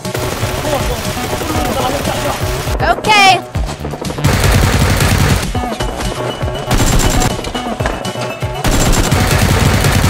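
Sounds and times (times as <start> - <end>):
background music: 0.0 - 10.0
automatic gunfire bursts: 4.2 - 5.5, 6.7 - 7.4, 8.6 - 10.0.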